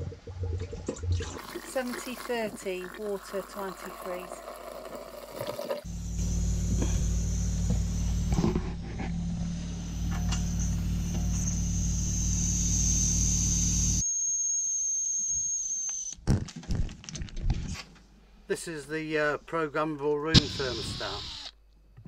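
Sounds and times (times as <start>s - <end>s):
steady low hum: 5.8s - 14.0s
air whistling from radiator valve: 5.9s - 16.1s, 20.3s - 21.5s.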